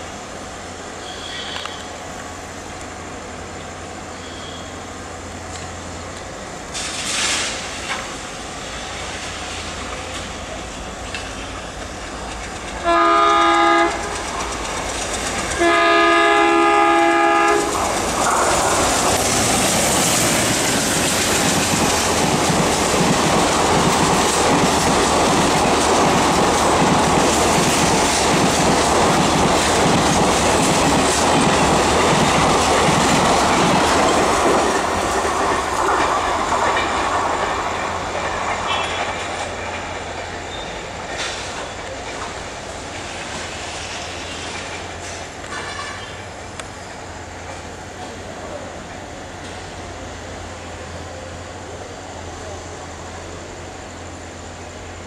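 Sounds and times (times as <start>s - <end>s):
diesel locomotive horn: 1.0s - 2.0s, 4.2s - 4.8s, 12.8s - 14.2s, 15.5s - 17.8s
locomotive passing at speed: 6.8s - 46.6s
wheels clattering over rails: 13.7s - 16.6s, 17.2s - 43.6s, 44.4s - 46.3s.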